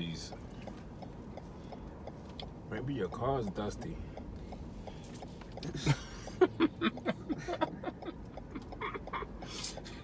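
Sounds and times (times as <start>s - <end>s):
chuckling and mouth noises: 5.5s - 10.0s.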